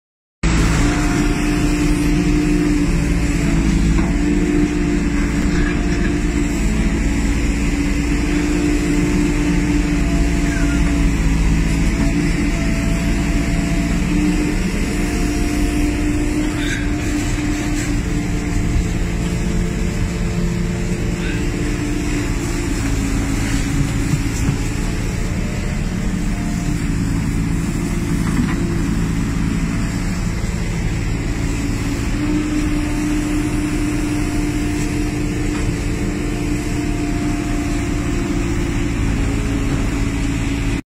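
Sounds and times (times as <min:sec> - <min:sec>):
heavy diesel engine running: 0:00.4 - 0:40.8.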